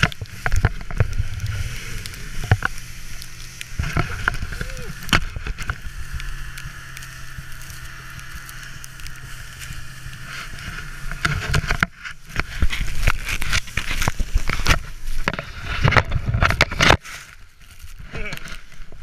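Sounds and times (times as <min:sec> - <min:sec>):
sled hissing over snow: 0:00.0 - 0:15.8
sled knocking and scraping: 0:00.0 - 0:19.0
faint engine hum: 0:00.2 - 0:13.8.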